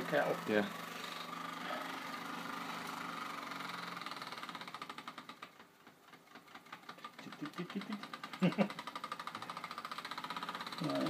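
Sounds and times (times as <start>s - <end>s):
toy steam engine chuffing: 0.0s - 11.0s.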